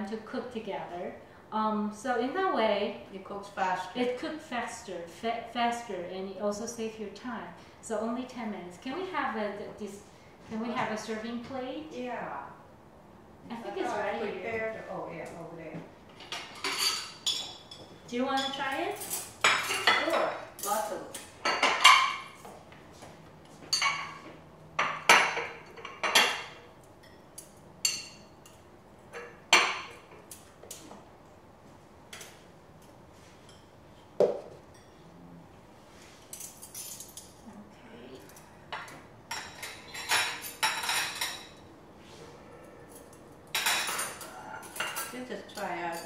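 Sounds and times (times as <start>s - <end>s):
forks and plates clinking: 16.2s - 17.8s, 38.2s - 41.7s, 42.6s - 46.0s.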